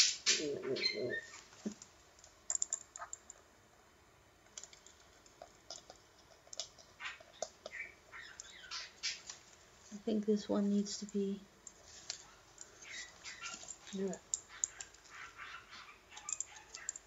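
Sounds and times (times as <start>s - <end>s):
light clicks and taps: 1.6s - 3.4s, 4.4s - 7.8s, 16.2s - 17.0s.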